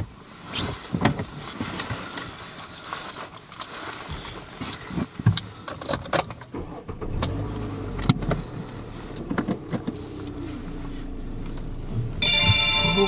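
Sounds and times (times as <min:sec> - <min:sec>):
car engine driving off: 0:06.5 - 0:12.3.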